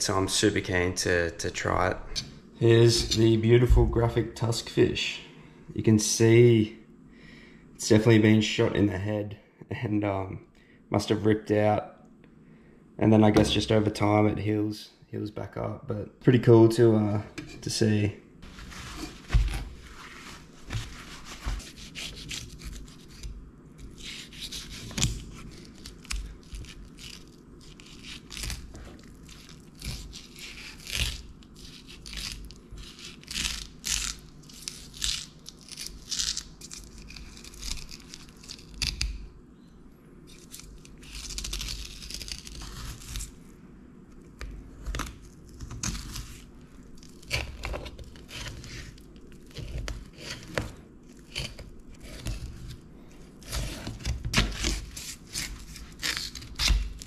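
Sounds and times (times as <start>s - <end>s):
knife cutting through fish: 20.7s - 34.8s.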